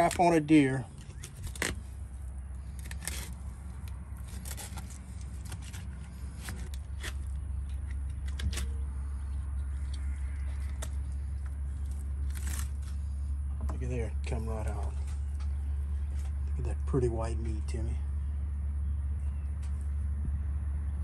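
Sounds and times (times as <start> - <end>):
knife scraping fish: 2.7 - 3.5.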